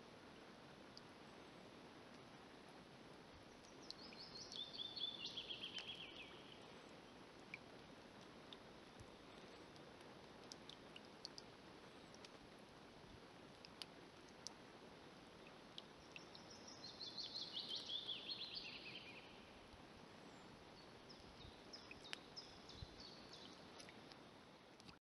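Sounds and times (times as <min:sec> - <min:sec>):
faint steady hiss: 0:00.0 - 0:25.0
soft ticks: 0:03.5 - 0:04.7, 0:05.7 - 0:06.0, 0:07.4 - 0:11.5, 0:12.1 - 0:12.5, 0:13.5 - 0:14.6, 0:15.4 - 0:16.4, 0:21.1 - 0:22.3, 0:23.4 - 0:25.0
songbird singing high notes: 0:16.3 - 0:19.4.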